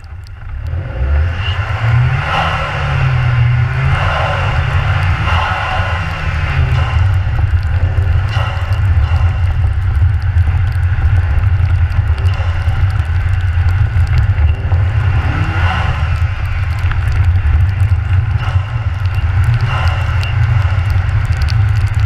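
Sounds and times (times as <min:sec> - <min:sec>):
car engine running: 0:00.0 - 0:22.0
wind and tyre rumble: 0:00.0 - 0:22.0.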